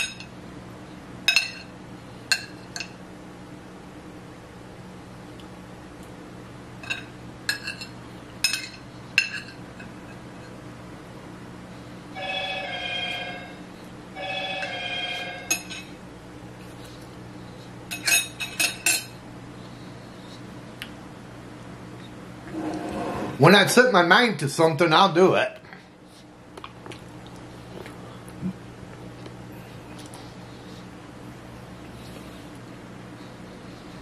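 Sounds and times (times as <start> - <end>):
telephone ringing two-tone: 12.2 - 15.7
cutlery clinking on a plate: 17.9 - 19.1.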